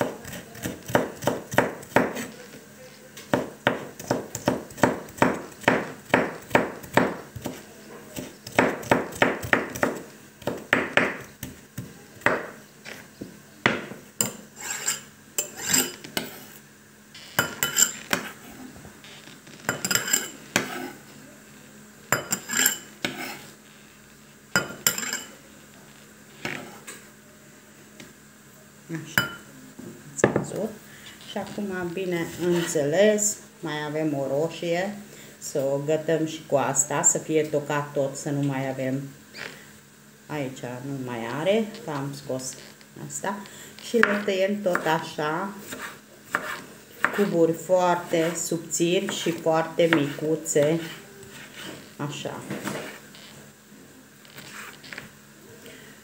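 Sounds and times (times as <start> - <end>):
knife chopping on wooden board: 0.0 - 2.3, 3.3 - 7.6, 8.2 - 12.6, 44.0 - 44.9, 45.6 - 47.4
knife scraping into glass bowl: 14.5 - 16.6, 17.4 - 18.4, 19.7 - 21.0, 22.2 - 23.5, 24.8 - 25.3, 45.6 - 47.3.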